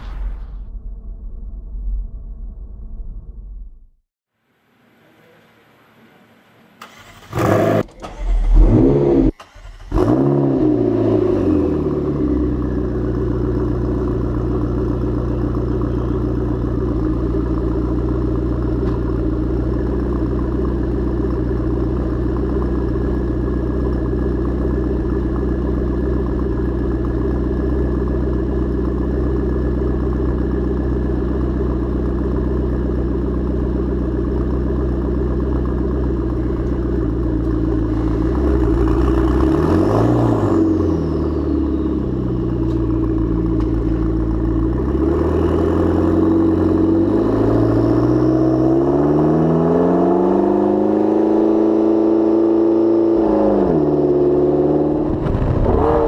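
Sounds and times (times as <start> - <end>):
sports car engine revving: 6.9 - 56.0
car engine idling: 11.0 - 48.7.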